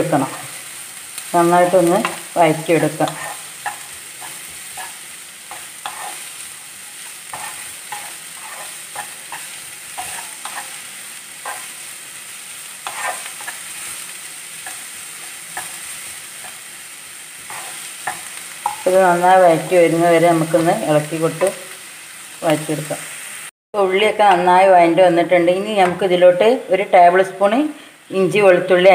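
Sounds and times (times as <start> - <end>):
onions sizzling in oil: 0.0 - 28.9
wooden spatula scraping pan: 3.0 - 6.3, 7.0 - 11.8, 12.8 - 14.0, 17.4 - 18.8.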